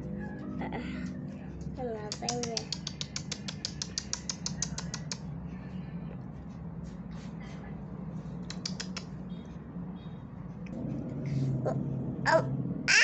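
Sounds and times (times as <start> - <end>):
low hum: 0.0 - 12.9
tapping clicks on tiled floor: 2.1 - 5.3, 8.4 - 9.1.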